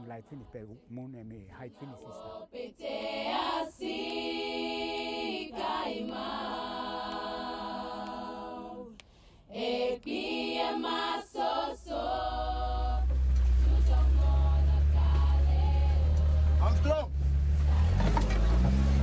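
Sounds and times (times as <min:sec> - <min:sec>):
person singing unaccompanied: 0:00.0 - 0:16.6.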